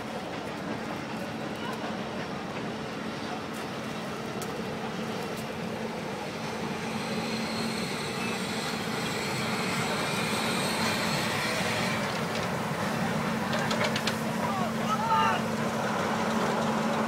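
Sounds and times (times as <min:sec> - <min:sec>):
train coaches rumbling on track: 0:00.0 - 0:17.0.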